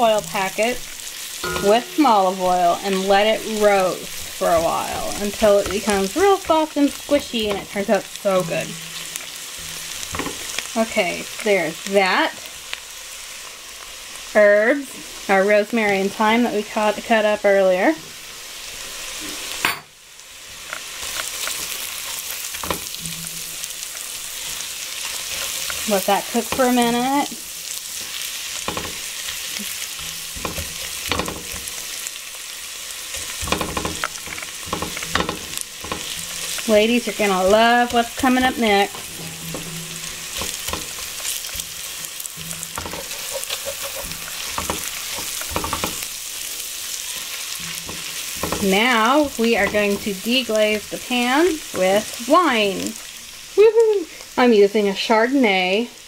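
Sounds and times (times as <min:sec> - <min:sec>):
vegetables sizzling in oil: 0:00.0 - 0:56.0
spatula scraping a pot: 0:33.1 - 0:50.2.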